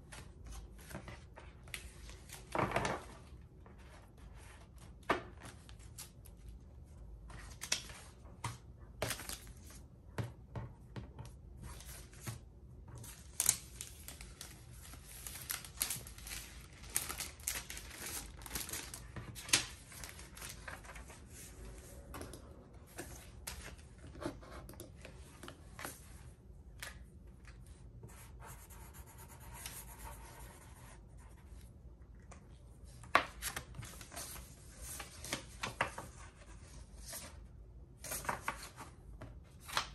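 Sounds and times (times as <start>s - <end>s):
paper envelopes tapping and rustling: 0.1s - 3.4s, 7.2s - 21.2s, 32.3s - 37.3s, 38.0s - 39.9s
plastic sleeves crinkling: 13.1s - 21.1s.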